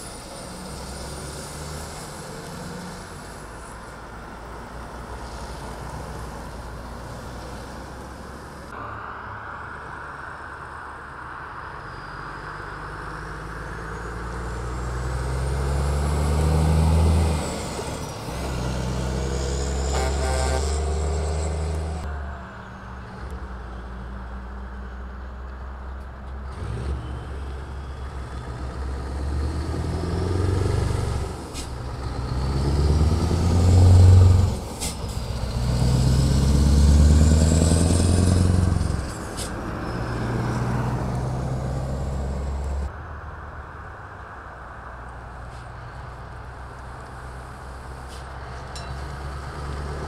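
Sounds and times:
heavy trucks driving past: 0.0s - 50.0s.

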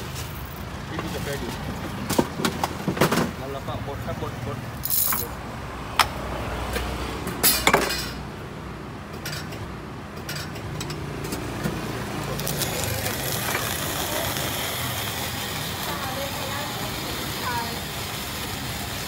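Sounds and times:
street background: 0.0s - 19.0s
metal utensils clinking: 4.8s - 5.3s.

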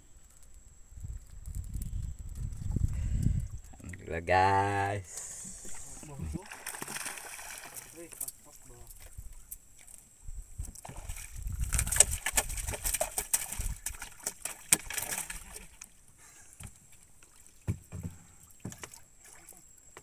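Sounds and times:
water splashing around boat: 5.2s - 20.0s
knocks on wooden hull: 17.6s - 19.0s.

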